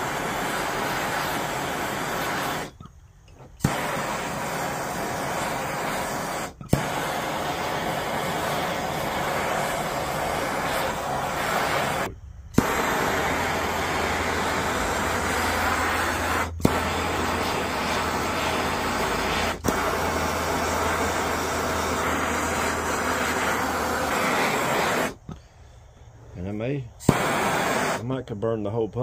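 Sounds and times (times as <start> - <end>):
gas torch hissing: 0.0 - 25.5, 27.0 - 28.2
torch igniter click: 12.6 - 13.8.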